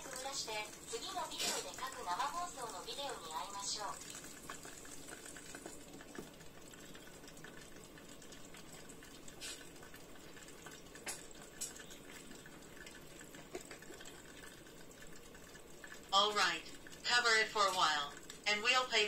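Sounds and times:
buns sizzling in oil: 0.0 - 19.0
sharp pops and ticks: 9.0 - 16.0.

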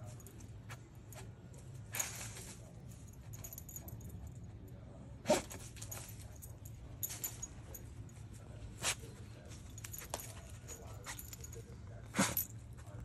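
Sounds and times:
dog sniffing and snorting: 12.1 - 12.5.

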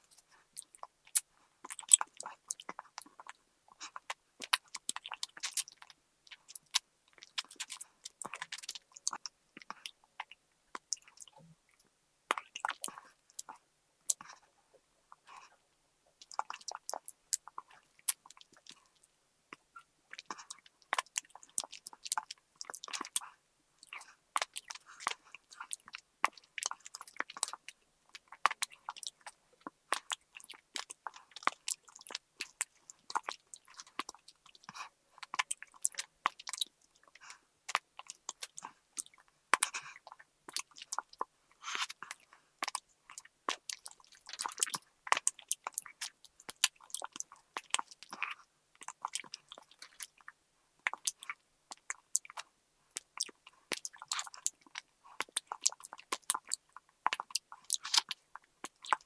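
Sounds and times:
teeth crunching candy straws: 0.1 - 11.3, 23.8 - 59.0.

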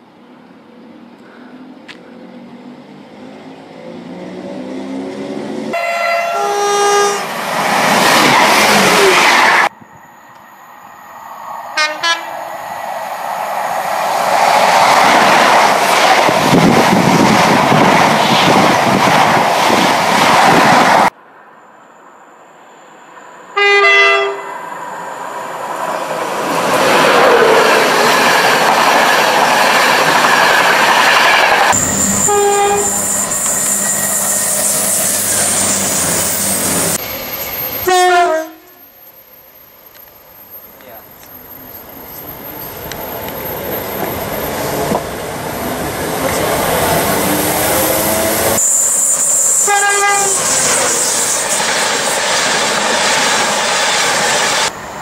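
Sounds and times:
train passing on rails: 0.0 - 55.0
two-tone train horn: 5.7 - 7.3, 11.8 - 12.4, 23.6 - 24.6, 31.8 - 33.9, 37.7 - 38.8, 49.5 - 50.5.

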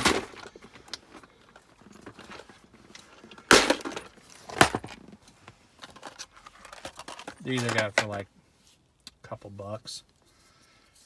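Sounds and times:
plastic box clicking and rattling: 5.8 - 8.2.

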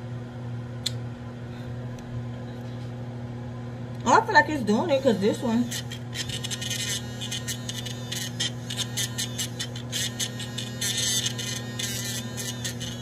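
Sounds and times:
electric nail drill humming: 4.1 - 13.0
drill bit rasping on nail: 4.8 - 13.0.

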